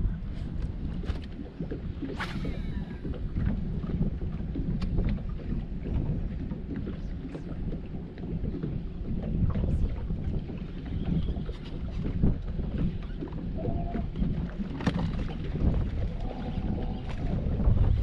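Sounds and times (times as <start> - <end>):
water slapping against boat hull: 0.0 - 18.0
wind rumbling on microphone: 0.0 - 18.0.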